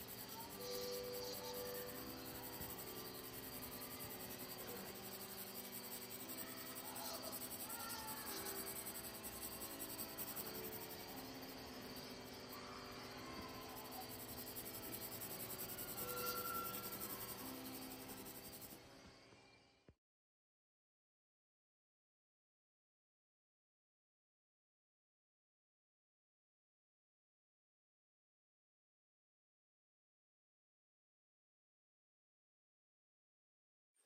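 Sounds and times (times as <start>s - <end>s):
soft ambient music: 0.0s - 19.9s.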